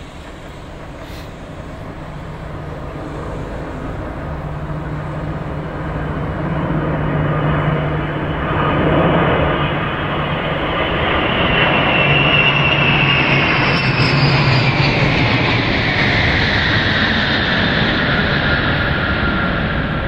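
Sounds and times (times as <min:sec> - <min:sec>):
high turbine whine: 0:00.0 - 0:20.0
jet engine noise: 0:00.0 - 0:20.0.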